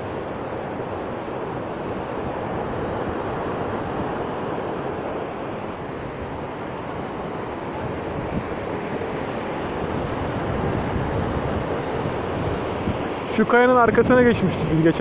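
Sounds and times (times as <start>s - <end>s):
stream rushing over boulders: 0.0s - 15.0s.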